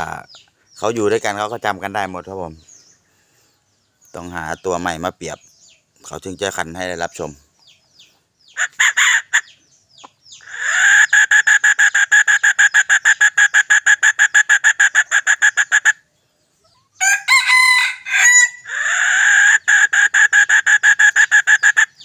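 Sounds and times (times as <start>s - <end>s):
rooster crowing: 17.0s - 19.4s.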